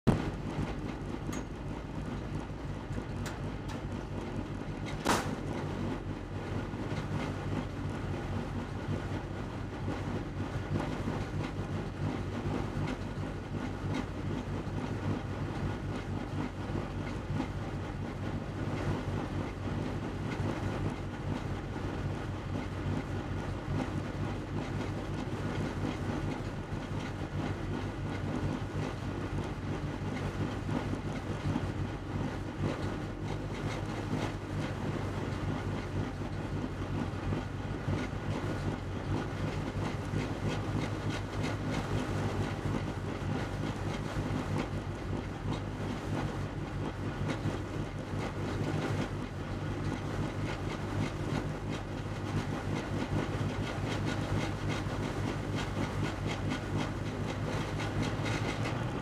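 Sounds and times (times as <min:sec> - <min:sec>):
car engine idling: 0:00.1 - 0:59.0
sharp knock: 0:05.0 - 0:05.5.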